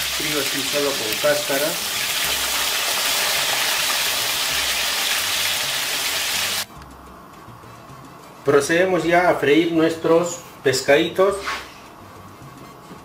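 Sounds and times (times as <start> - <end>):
oil sizzling deep-frying: 0.0 - 6.7.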